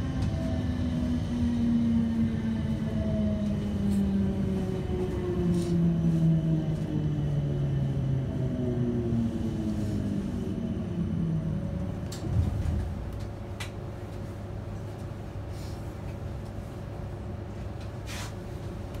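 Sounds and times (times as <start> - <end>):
steady train hum: 0.0 - 19.0
train running rumble: 0.0 - 19.0.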